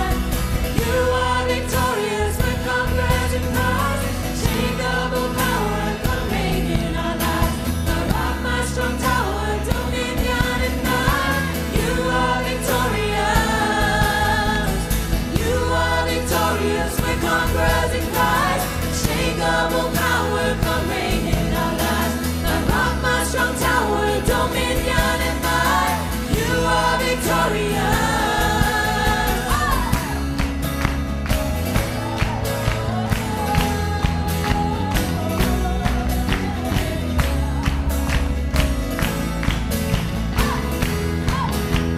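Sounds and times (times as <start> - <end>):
voices singing together: 0.0 - 30.8, 32.2 - 38.7
worship band playing: 0.0 - 41.9.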